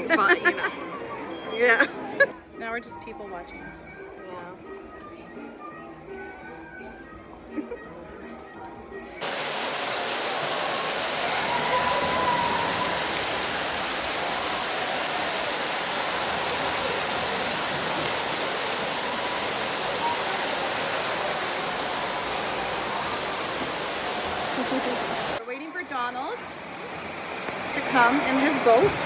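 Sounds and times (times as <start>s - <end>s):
fountain water splashing into pond: 9.2s - 29.0s.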